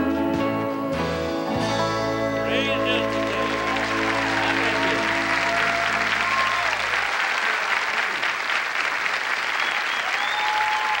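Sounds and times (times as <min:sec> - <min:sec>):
held notes of a song: 0:00.0 - 0:06.7
audience applauding: 0:02.5 - 0:11.0.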